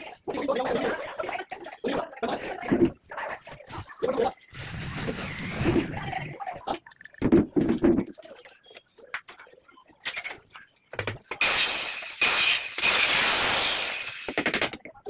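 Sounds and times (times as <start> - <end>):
power drill boring into wood: 11.4 - 14.6.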